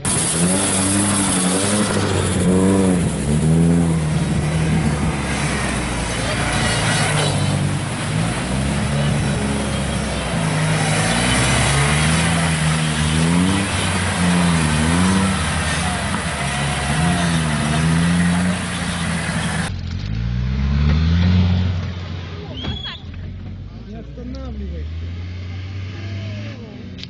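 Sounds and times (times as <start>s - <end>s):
engine pulling under load: 0.0s - 21.5s
truck engine revving: 0.0s - 22.6s.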